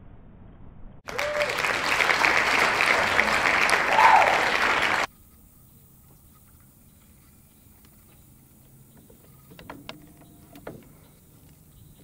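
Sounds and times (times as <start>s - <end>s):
crowd applause: 1.1s - 5.1s
crowd cheering: 1.1s - 5.1s.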